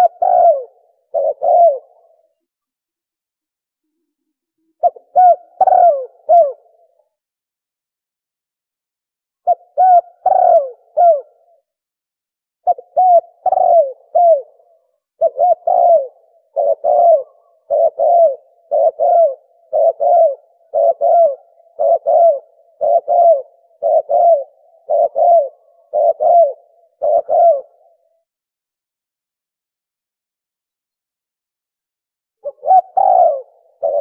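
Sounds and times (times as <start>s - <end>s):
dove cooing: 0.0s - 2.5s, 4.6s - 7.1s, 9.4s - 11.6s, 12.6s - 28.2s, 32.4s - 34.0s.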